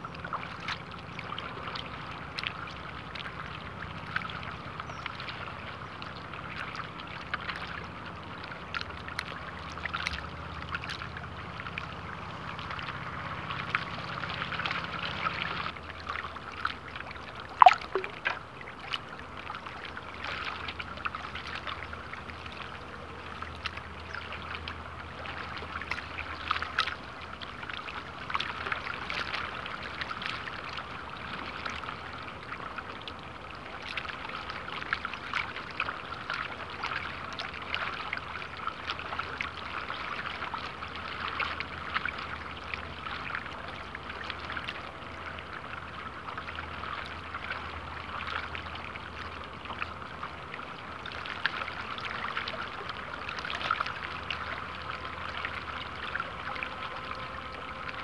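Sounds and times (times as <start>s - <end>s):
ripples lapping at waterline: 0.0s - 58.0s.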